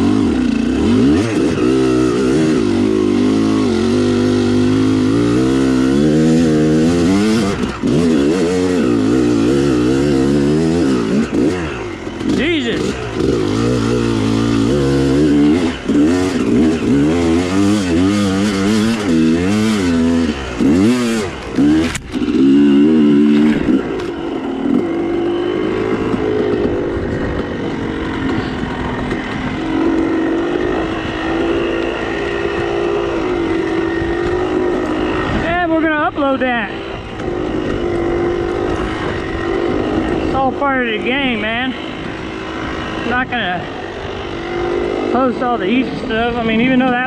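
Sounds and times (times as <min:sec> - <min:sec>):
dirt bike engine revving: 0:00.0 - 0:47.0.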